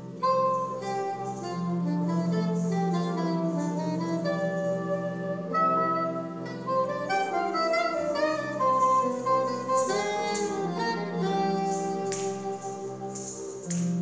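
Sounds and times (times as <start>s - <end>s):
reedy wind melody: 0.0s - 14.0s
bright percussive strikes: 8.3s - 14.0s.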